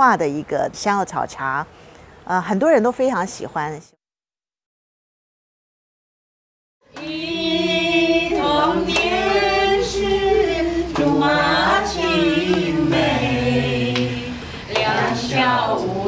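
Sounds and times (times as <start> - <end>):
group singing in unison: 6.8 - 16.0.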